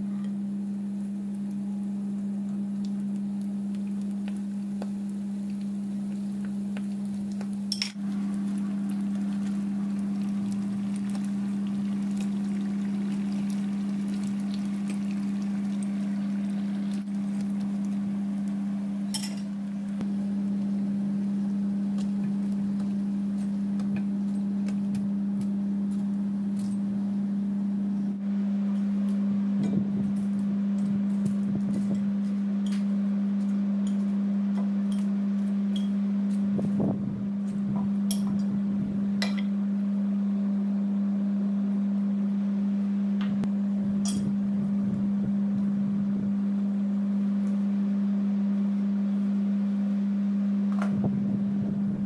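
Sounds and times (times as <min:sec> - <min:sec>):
steady low hum: 0:00.0 - 0:52.0
food deep-frying in oil: 0:00.7 - 0:27.2.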